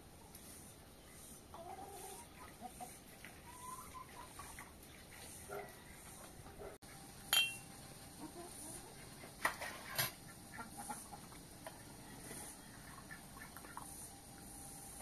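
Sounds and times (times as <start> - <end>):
hens clucking: 1.2 - 6.7, 8.1 - 9.4, 10.1 - 14.2
tea glasses and kettle clinking: 7.3 - 7.6.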